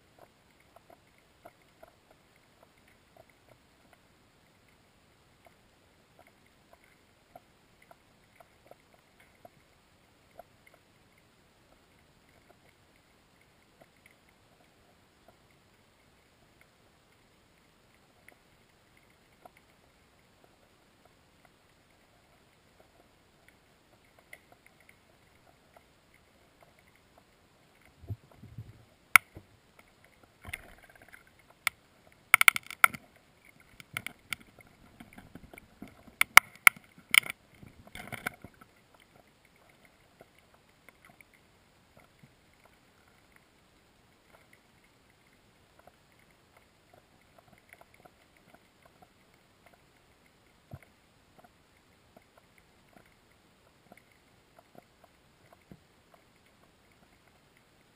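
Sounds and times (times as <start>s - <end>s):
underwater clicks and knocks: 27.8s - 39.2s.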